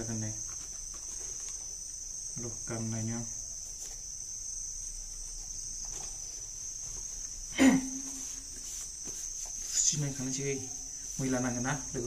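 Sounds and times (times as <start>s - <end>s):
insects chirring: 0.0s - 12.0s.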